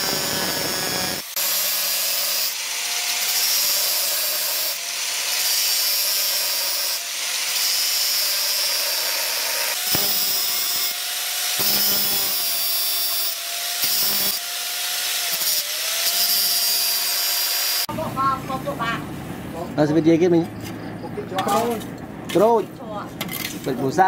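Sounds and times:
angle grinder grinding steel: 0.0s - 17.9s.

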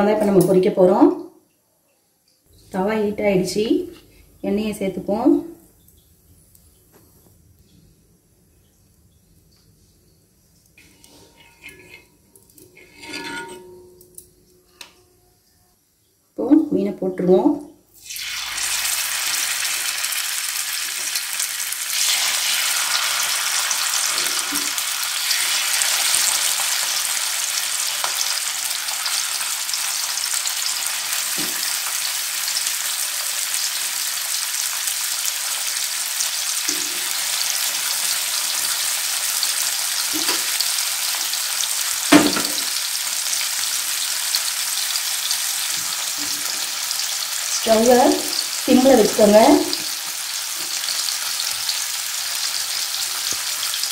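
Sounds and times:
fish sizzling in hot oil: 18.0s - 53.9s.

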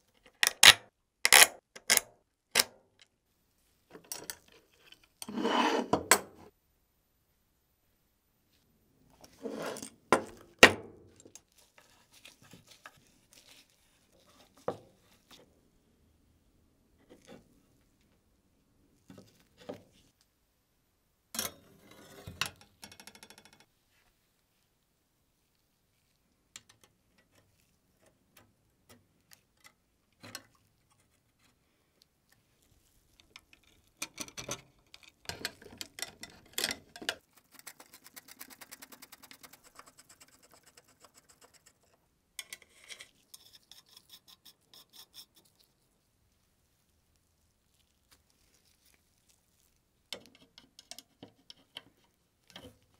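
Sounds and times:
metal parts clicking and tapping: 33.2s - 37.2s, 50.1s - 52.8s.

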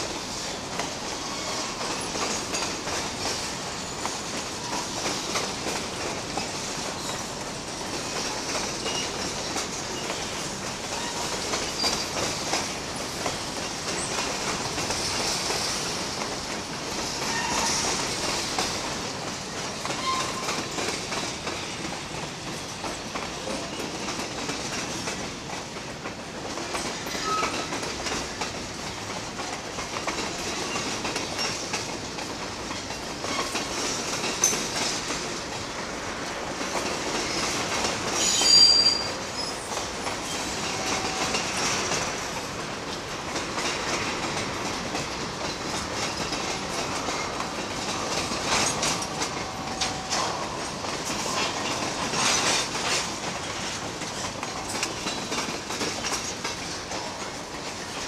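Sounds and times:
train wheels clicking over rail joints: 0.0s - 58.0s
train wheel squeal: 0.1s - 5.5s, 6.4s - 7.4s, 8.1s - 16.2s, 16.9s - 18.8s, 19.8s - 21.7s, 26.7s - 28.4s, 30.1s - 31.9s, 32.7s - 35.1s, 36.8s - 42.2s, 45.4s - 57.1s.

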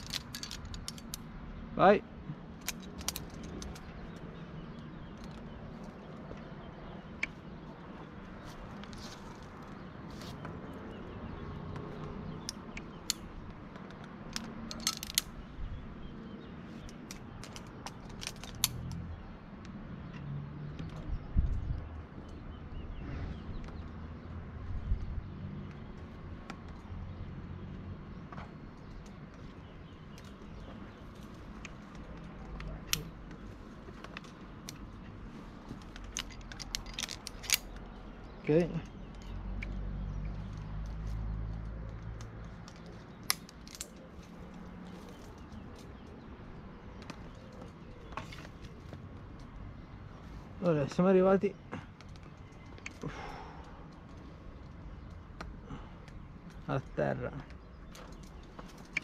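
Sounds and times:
metal climbing hardware clinking: 0.0s - 1.3s, 2.5s - 7.4s, 8.0s - 16.1s, 16.7s - 19.0s, 28.8s - 49.5s, 51.6s - 59.0s.

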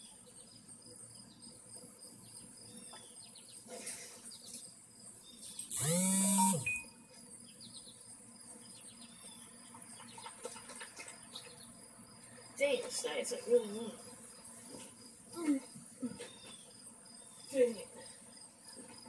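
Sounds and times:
bird chirps: 5.2s - 8.0s.

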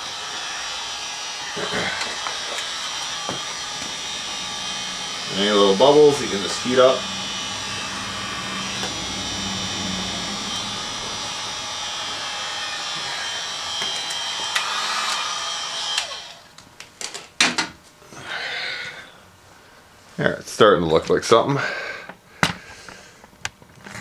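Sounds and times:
heat gun blowing: 0.0s - 16.5s.

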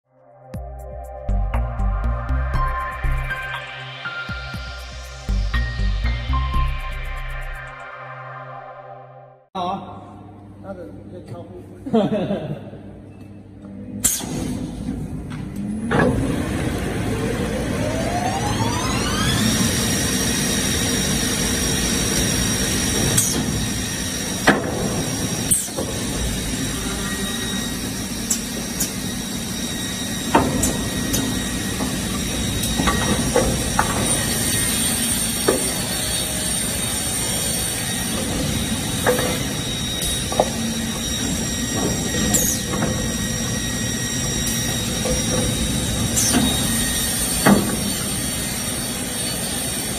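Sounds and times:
panel saw whining: 15.6s - 49.9s.

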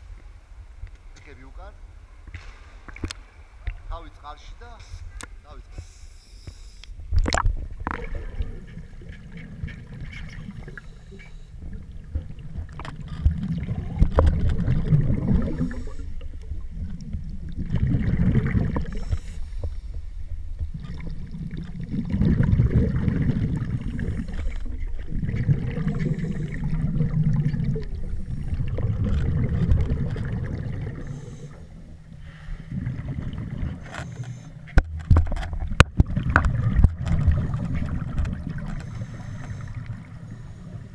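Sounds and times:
diver breathing through regulator: 5.7s - 7.0s, 10.4s - 11.8s, 15.1s - 16.2s, 18.8s - 20.1s, 23.6s - 28.9s, 30.8s - 33.1s, 33.7s - 34.8s, 38.6s - 40.9s
exhaled bubbles underwater: 7.1s - 40.9s.

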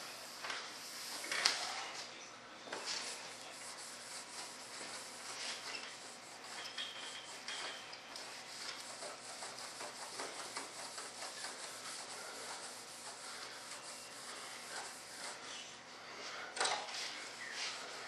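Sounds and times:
pad scrubbing over surface: 2.8s - 15.6s.

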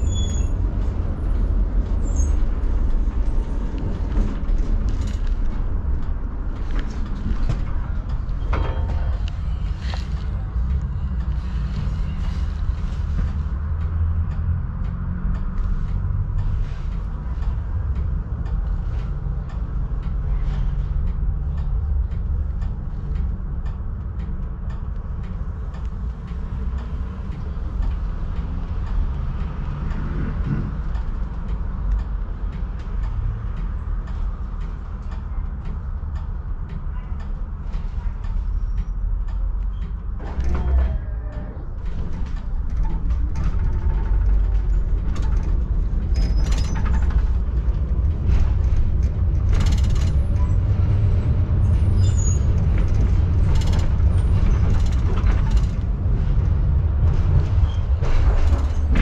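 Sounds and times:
tram wheels rumbling on rails: 0.0s - 59.0s
light clicks and rattles: 39.6s - 51.1s, 52.0s - 59.0s.

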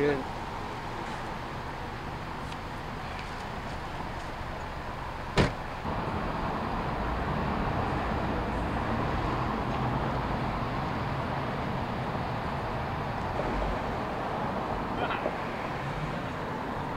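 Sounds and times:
road traffic noise: 0.0s - 16.9s
car door slamming: 5.3s - 5.7s.

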